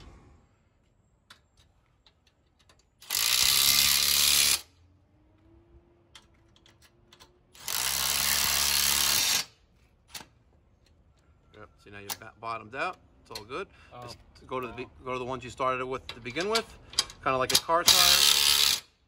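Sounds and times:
cordless drill driving bolts: 0:02.6 - 0:04.7, 0:06.2 - 0:09.5, 0:16.3 - 0:18.9.

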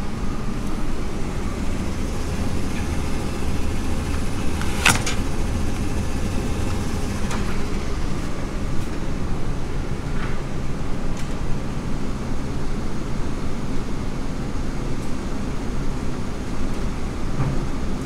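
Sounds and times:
steady low rumble: 0:00.0 - 0:10.1.

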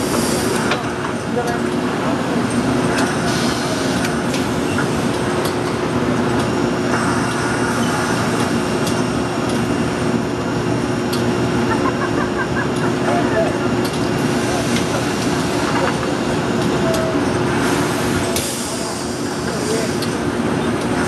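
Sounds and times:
ironing machine blower humming: 0:00.0 - 0:21.0
crowd voices: 0:11.5 - 0:17.4.

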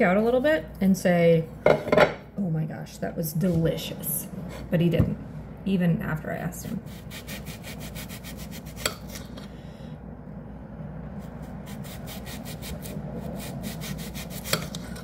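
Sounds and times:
knife sawing through onion: 0:06.8 - 0:09.2, 0:11.2 - 0:15.0.

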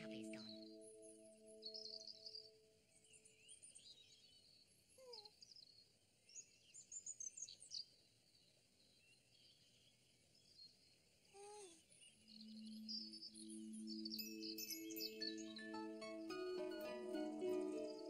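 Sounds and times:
birdsong chirps and trills: 0:00.0 - 0:18.0
steady humming musical tone: 0:12.5 - 0:18.0.

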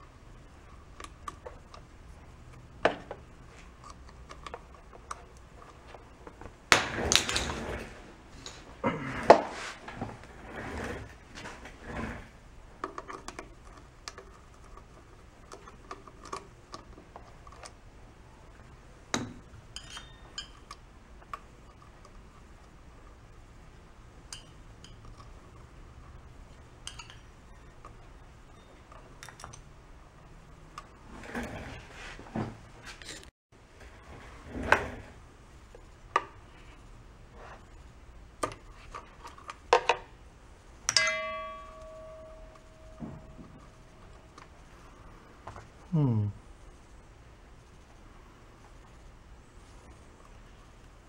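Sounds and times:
hand tools clicking and scraping plastic: 0:09.2 - 0:17.8
light metallic clinks: 0:40.9 - 0:44.2.

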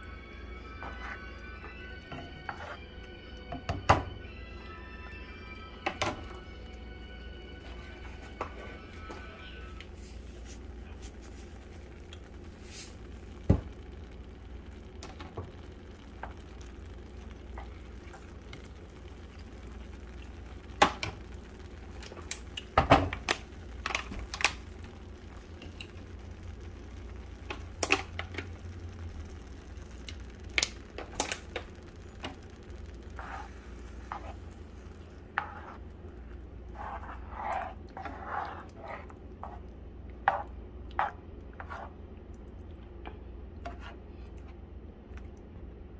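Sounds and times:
gravy simmering in a frying pan: 0:00.0 - 0:45.9
steady low hum: 0:00.0 - 0:45.9
spoon scraping through gravy: 0:36.7 - 0:39.7.

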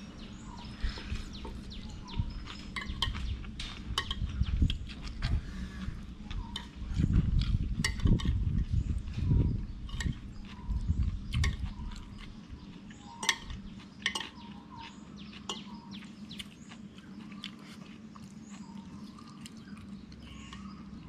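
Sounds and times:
low steady hum: 0:00.0 - 0:21.0
cutlery clinking on a plate: 0:03.9 - 0:04.3.

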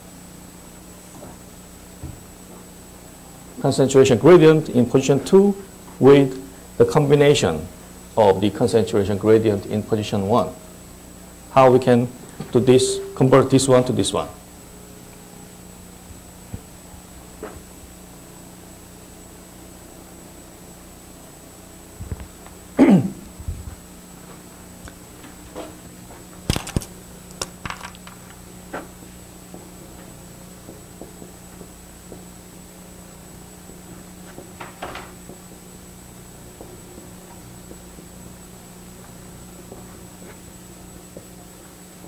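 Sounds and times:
thin high whine: 0:00.0 - 0:20.9
low hum with hiss: 0:00.0 - 0:42.0.

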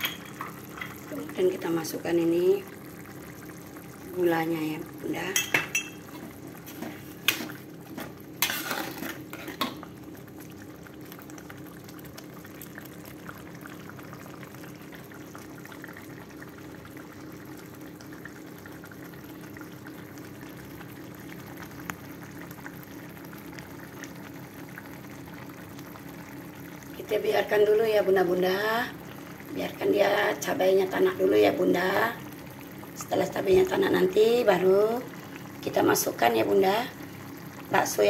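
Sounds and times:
sauce simmering in a wok: 0:00.0 - 0:38.0
metal spatula scraping a wok: 0:08.4 - 0:09.6.

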